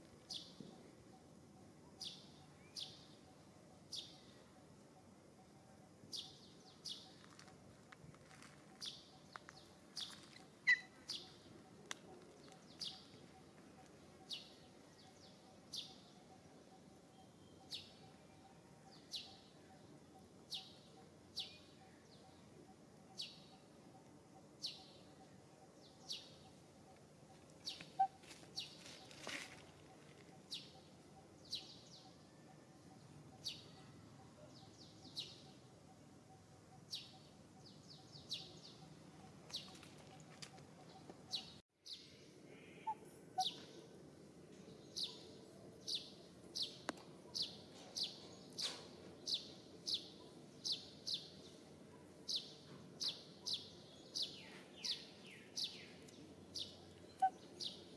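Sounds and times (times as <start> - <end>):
bird chirping: 0.0 - 57.9.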